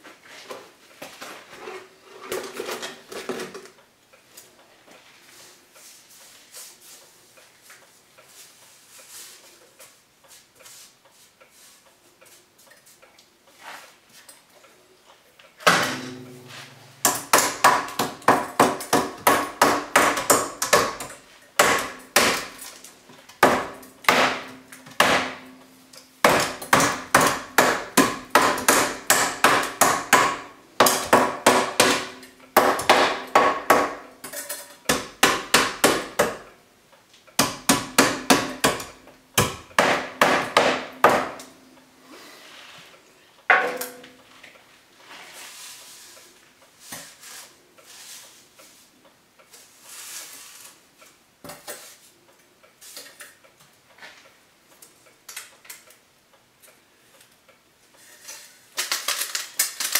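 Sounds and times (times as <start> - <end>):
hammer striking metal pipe: 15.7 - 22.6, 23.4 - 36.4, 43.5 - 44.2.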